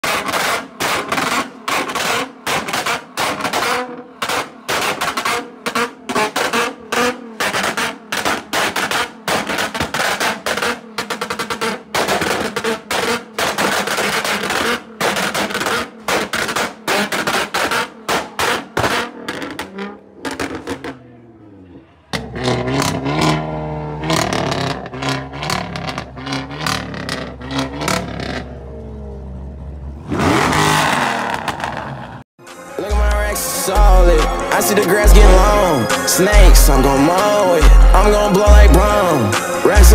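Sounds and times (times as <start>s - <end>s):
exhaust popping and banging: 0.0s - 21.4s, 22.0s - 28.9s
car engine revving: 0.0s - 39.9s
music with steady bass: 32.4s - 39.9s.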